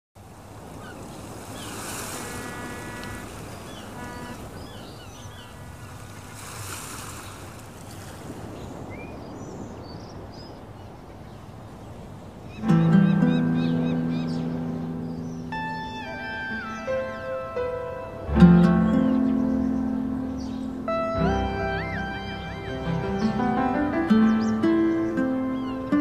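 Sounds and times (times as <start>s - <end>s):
waves washing on shore: 0.2s - 15.6s
wind: 0.2s - 26.0s
high bird chirps: 2.4s - 6.0s, 12.5s - 26.0s.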